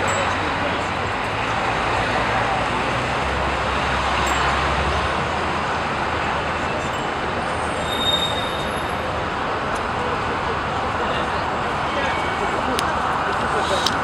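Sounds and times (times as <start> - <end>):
moving vehicle noise: 0.0 - 14.0
brief high squeal: 7.8 - 8.8.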